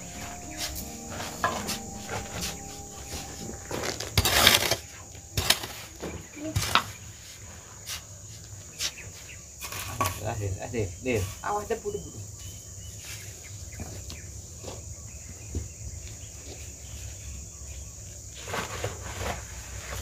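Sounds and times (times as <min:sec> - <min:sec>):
high-pitched insect drone: 0:00.0 - 0:07.2
scrape: 0:18.4 - 0:20.0.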